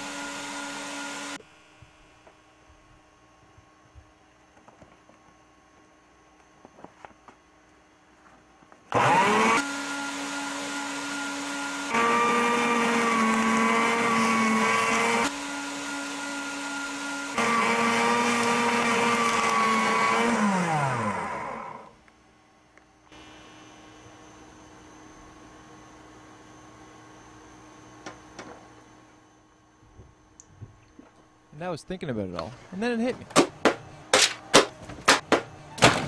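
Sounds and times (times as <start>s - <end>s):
paper shredder motor: 0.0s - 1.4s, 8.9s - 22.0s
shredder cutting paper: 0.0s - 1.4s, 8.9s - 21.9s.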